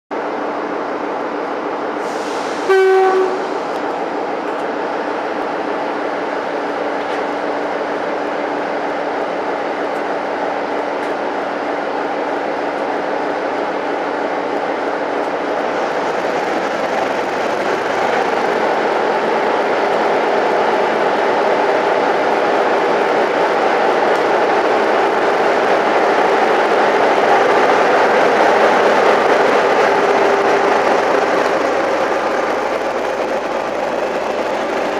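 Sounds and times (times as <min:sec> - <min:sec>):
train rolling past: 0:00.2 - 0:34.9
train horn blast: 0:02.6 - 0:03.7
diesel locomotive engine running: 0:13.1 - 0:34.9.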